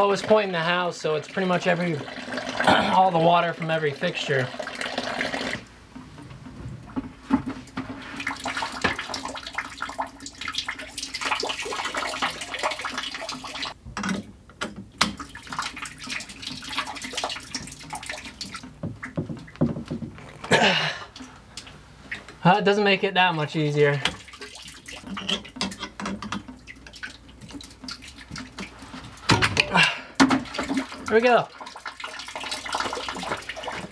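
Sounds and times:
water splashing into plastic bucket: 0:06.8 - 0:21.4, 0:23.3 - 0:33.9.

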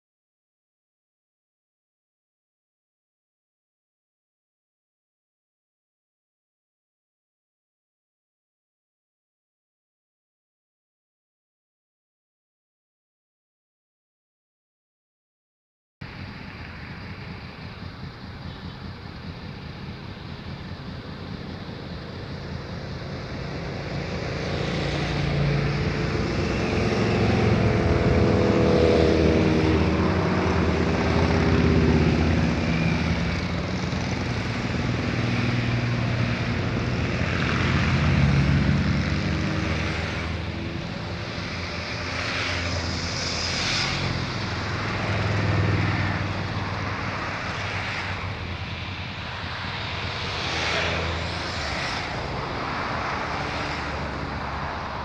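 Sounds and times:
low engine drone: 0:16.0 - 0:55.0
motorcycles riding past: 0:16.0 - 0:55.0.

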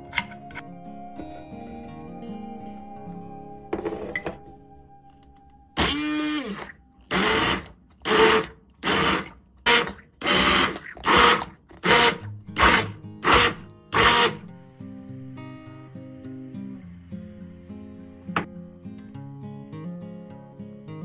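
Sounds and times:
stick blender running: 0:05.8 - 0:18.5.

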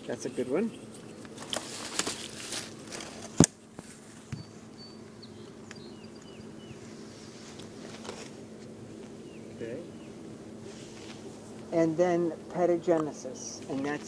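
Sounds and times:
steady low hum: 0:00.0 - 0:14.0
handling rustles: 0:00.3 - 0:04.6, 0:06.9 - 0:09.2.

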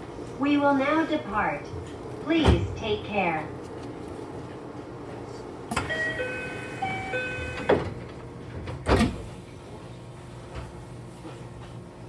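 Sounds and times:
train doors thudding shut: 0:05.7 - 0:09.4
two-note door chime: 0:05.8 - 0:07.8.

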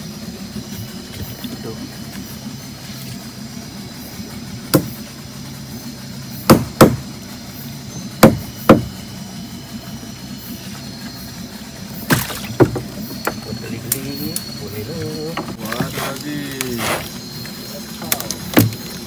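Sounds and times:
steady low hum: 0:00.0 - 0:19.0
knocks against boat hull: 0:04.7 - 0:05.0, 0:06.5 - 0:07.0, 0:08.2 - 0:09.0, 0:12.1 - 0:13.5.

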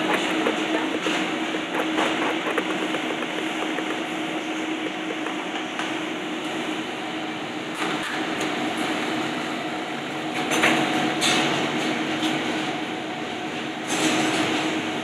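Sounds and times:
palette knife scraping: 0:00.0 - 0:05.7
kitchen ventilation whirring: 0:00.0 - 0:15.0.

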